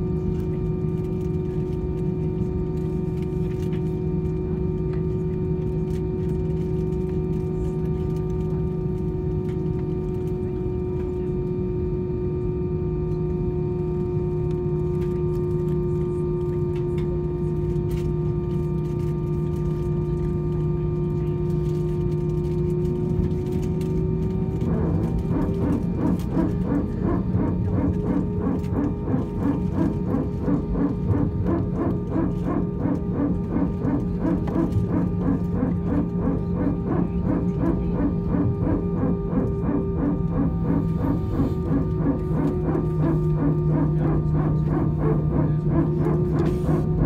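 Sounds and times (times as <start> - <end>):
airplane cabin drone: 0.0 - 47.0.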